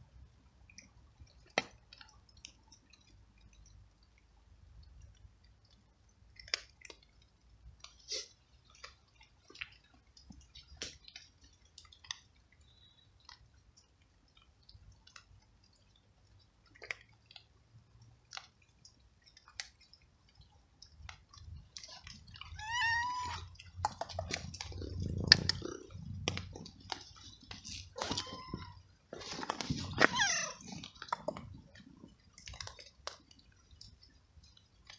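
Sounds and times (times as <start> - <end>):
cat crunching dry kibble: 0.8 - 34.9
cat meowing: 22.4 - 23.6, 28.0 - 28.8, 29.9 - 30.6
low rumbling noise: 24.3 - 27.4.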